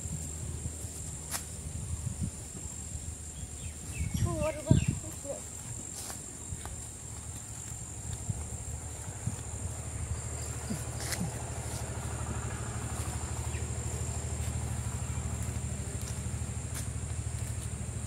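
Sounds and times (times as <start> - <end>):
footsteps crunching on leaf litter: 3.8 - 18.0
low pulsing rumble: 7.0 - 18.0.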